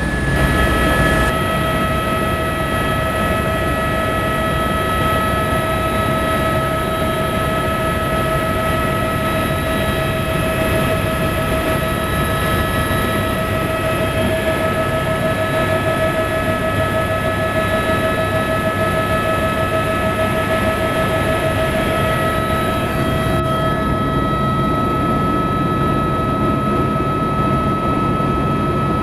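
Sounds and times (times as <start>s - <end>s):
helicopter cabin whine and rumble: 0.0s - 29.0s.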